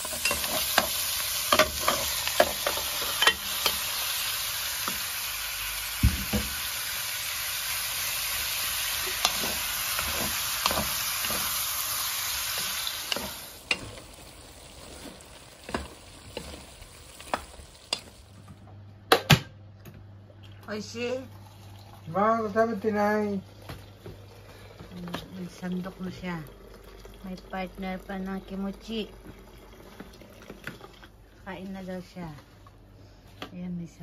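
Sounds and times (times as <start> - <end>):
food sizzling in a pan: 0.0 - 18.5.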